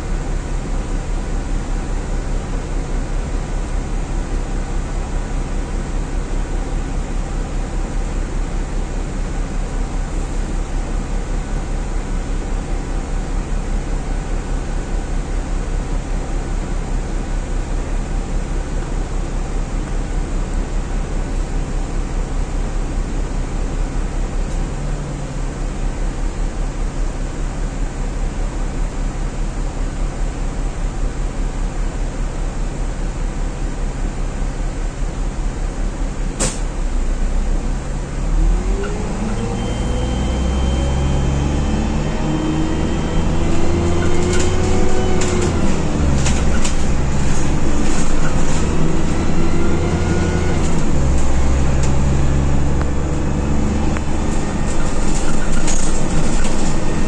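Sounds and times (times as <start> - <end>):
bus diesel engine droning: 0.0 - 57.0
road and air noise: 36.0 - 57.0.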